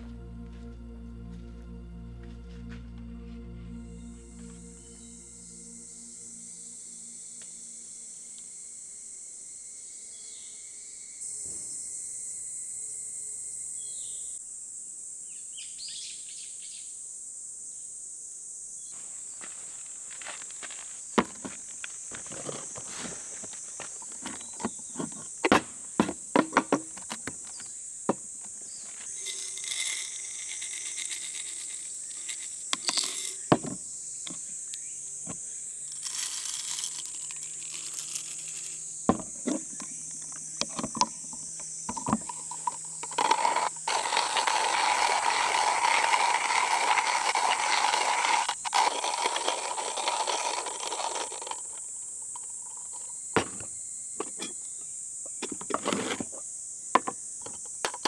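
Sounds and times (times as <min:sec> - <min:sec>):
high insect drone: 0:00.0 - 0:58.0
grinder handling clicks and knocks: 0:23.9 - 0:28.6, 0:29.2 - 0:34.4, 0:35.3 - 0:56.4, 0:57.0 - 0:58.0
coffee grinder crunching beans: 0:28.9 - 0:33.8, 0:35.8 - 0:41.1, 0:41.9 - 0:53.2.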